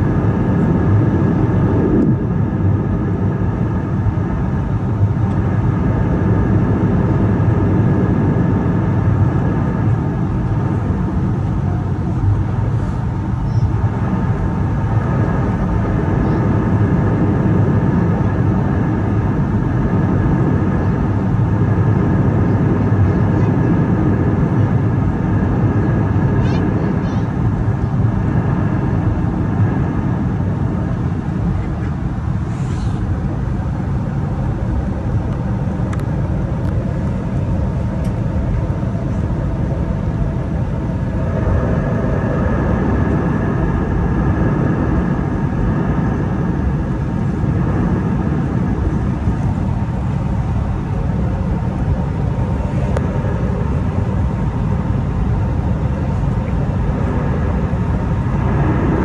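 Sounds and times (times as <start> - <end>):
engine and airflow rumble: 0.0 - 59.0
faint engine tones: 0.0 - 59.0.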